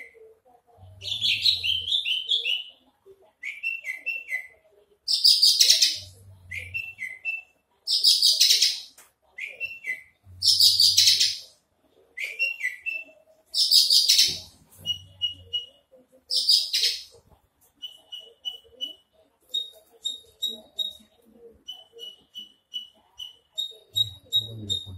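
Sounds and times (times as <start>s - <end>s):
bird down-slurred chirps: 9.5s - 11.5s, 21.6s - 24.9s.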